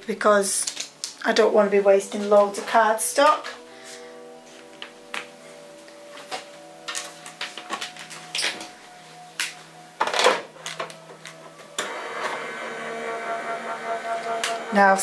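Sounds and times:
die-cutting machine motor running: 11.8s - 15.0s.

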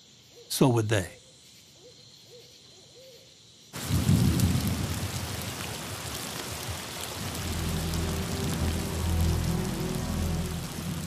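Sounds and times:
heavy rain pouring: 3.8s - 11.0s
low rumble: 7.2s - 11.0s.

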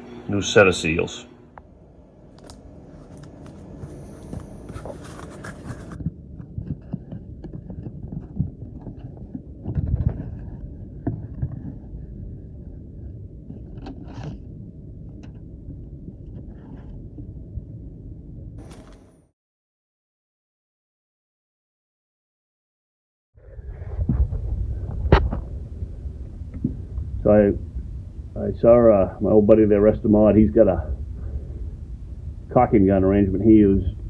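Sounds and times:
scrapes and clicks: 2.4s - 12.1s.

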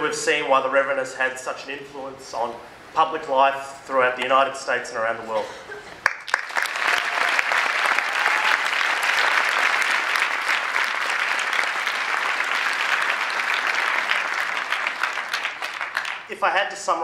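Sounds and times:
audience applauding: 6.0s - 16.3s.

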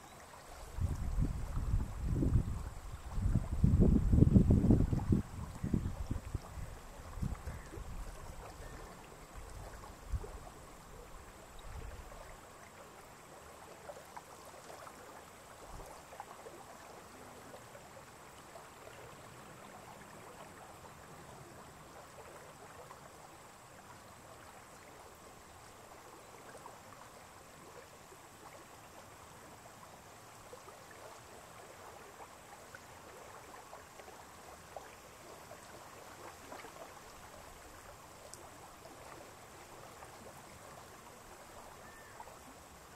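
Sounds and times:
wind rumble on microphone: 0.6s - 12.2s
lake water lapping: 4.7s - 42.9s.

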